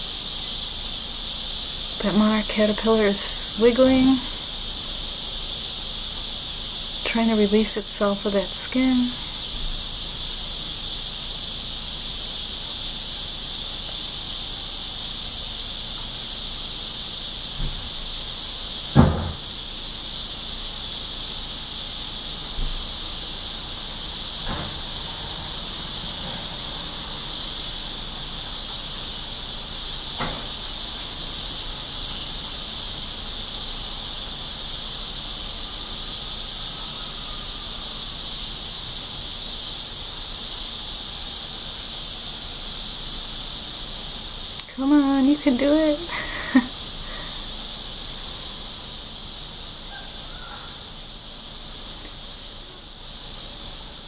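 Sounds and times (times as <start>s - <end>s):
insects chorus: 0.0s - 54.0s
sharp knock: 19.0s - 19.5s.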